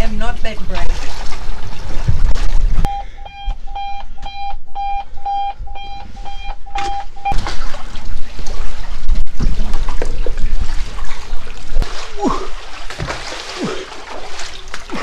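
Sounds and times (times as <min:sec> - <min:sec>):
water noise: 0:00.0 - 0:03.3, 0:05.6 - 0:15.0
electronic alarm beeping: 0:02.9 - 0:07.4.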